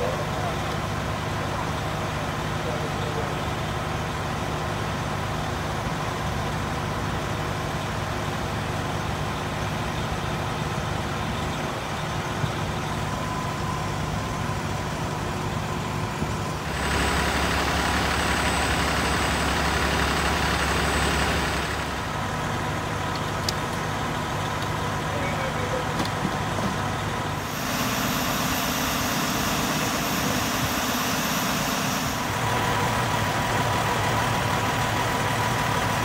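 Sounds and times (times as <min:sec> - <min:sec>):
diesel engines idling: 0:00.0 - 0:36.0
rushing hiss with deep drone: 0:27.4 - 0:34.8.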